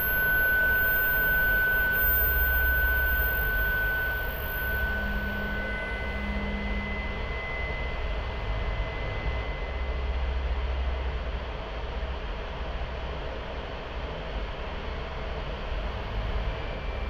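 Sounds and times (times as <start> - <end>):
thin high steady tone: 0.0 - 10.6
rumbling noise drone: 0.0 - 17.0.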